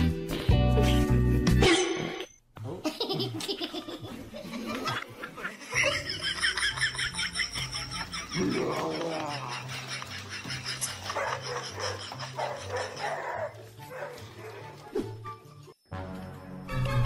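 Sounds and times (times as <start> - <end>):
person laughing hard: 2.8 - 13.0.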